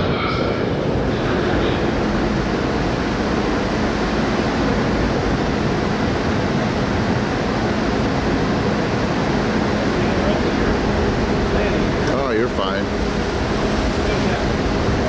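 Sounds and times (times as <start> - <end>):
wind and water rushing: 10.7 - 15.0.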